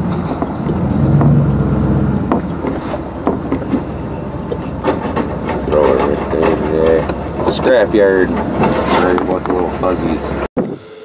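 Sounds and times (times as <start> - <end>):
truck engine hum from inside cab: 0.0 - 10.5
short knocks: 0.4 - 3.9.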